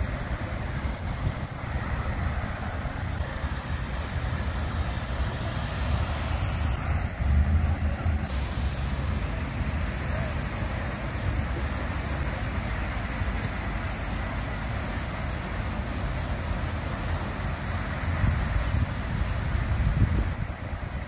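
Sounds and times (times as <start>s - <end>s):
wind buffeting microphone: 0.0s - 13.3s, 17.9s - 21.0s
fountain water falling: 0.0s - 21.0s.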